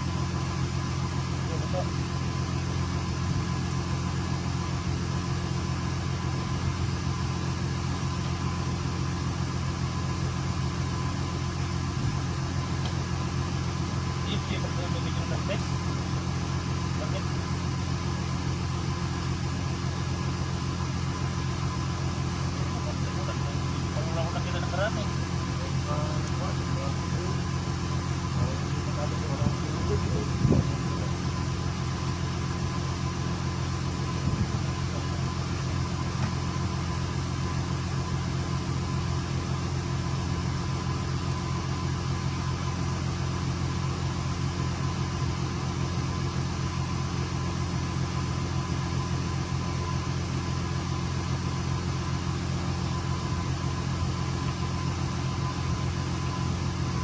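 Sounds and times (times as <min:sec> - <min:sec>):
boat engine humming: 0:00.0 - 0:57.0.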